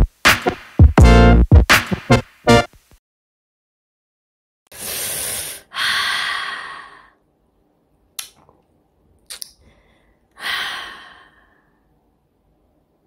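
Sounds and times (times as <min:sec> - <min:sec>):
person sighing heavily: 0:04.7 - 0:07.2, 0:09.7 - 0:11.7.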